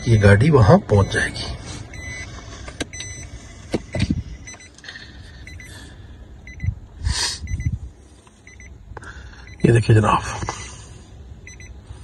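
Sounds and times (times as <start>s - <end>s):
car reversing beeper: 0.0s - 7.8s, 8.4s - 9.9s, 11.4s - 11.8s.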